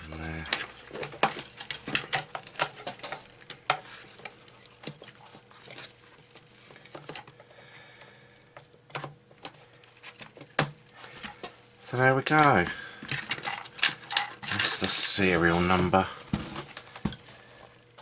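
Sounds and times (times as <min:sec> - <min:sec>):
clicks and taps of plastic and metal: 0:08.6 - 0:09.6.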